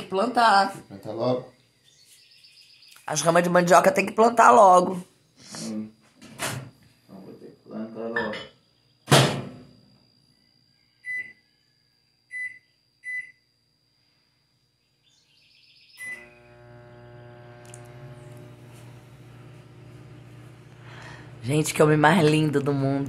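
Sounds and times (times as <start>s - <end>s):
microwave running hum: 7.9s - 23.0s
microwave door shutting: 9.1s - 9.6s
microwave keypad beeps: 11.0s - 11.4s, 12.3s - 13.4s.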